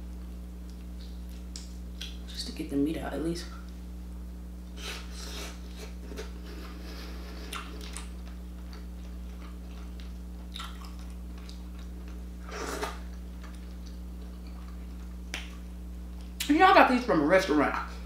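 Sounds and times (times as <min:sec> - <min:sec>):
steady low hum: 0:00.0 - 0:18.0
chewing seafood: 0:05.7 - 0:16.4.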